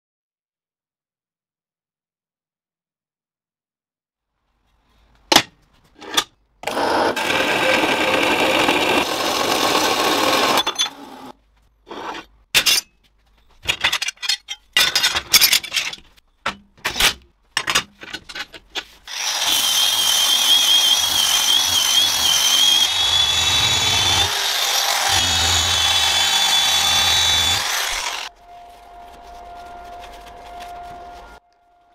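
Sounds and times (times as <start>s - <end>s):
angle polisher whining on steel: 6.7s - 11.3s, 19.1s - 31.4s
power tool running: 6.7s - 11.3s, 19.1s - 28.3s.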